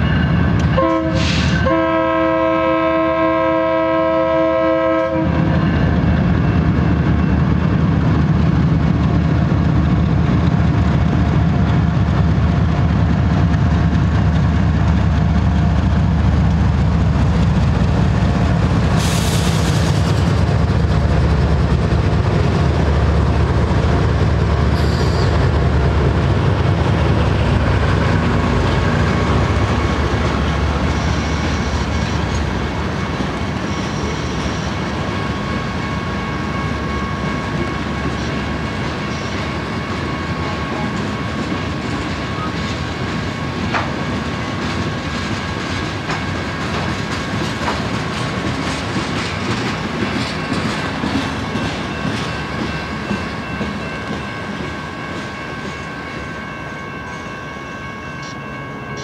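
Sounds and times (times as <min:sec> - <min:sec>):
diesel locomotive rumble: 0:00.0 - 0:55.8
locomotive air horn: 0:00.8 - 0:05.4
train wheels clacking on rails: 0:04.8 - 0:57.2.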